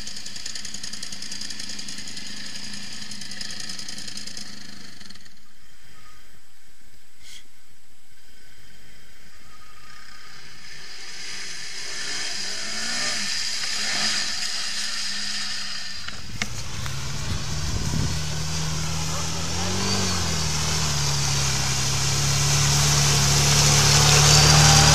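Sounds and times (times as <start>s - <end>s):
engine running steadily: 0.0s - 5.4s, 10.8s - 24.9s
quad bike engine revving: 0.0s - 5.4s, 10.6s - 24.9s
water splashing: 16.2s - 24.9s.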